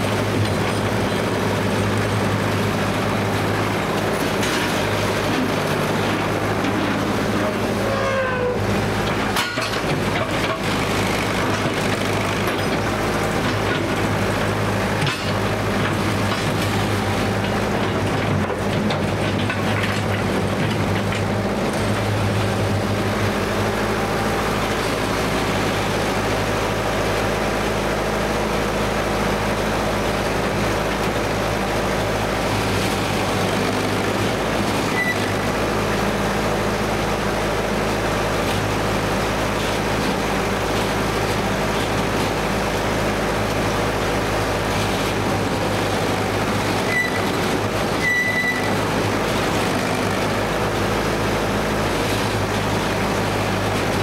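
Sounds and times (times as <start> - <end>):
high squeal: 7.7 - 8.7, 46.9 - 47.3, 48.0 - 48.8.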